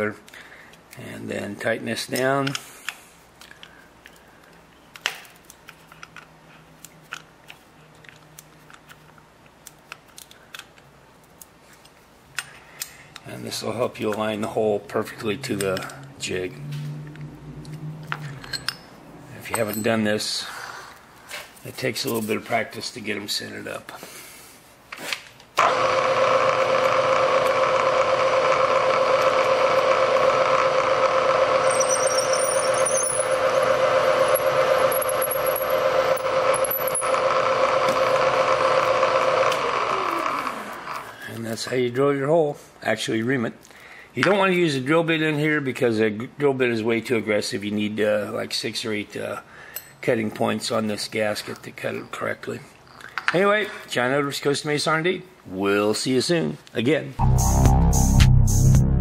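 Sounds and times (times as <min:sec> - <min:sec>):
milling machine switched on: 0:25.6 - 0:31.8, 0:33.1 - 0:41.0
spindle motor humming: 0:25.6 - 0:41.1.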